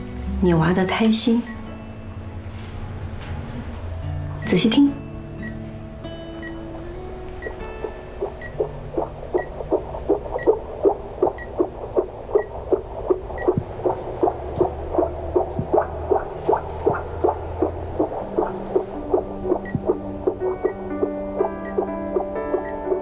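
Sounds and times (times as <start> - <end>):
fetal heartbeat on doppler monitor: 7.4 - 23.0.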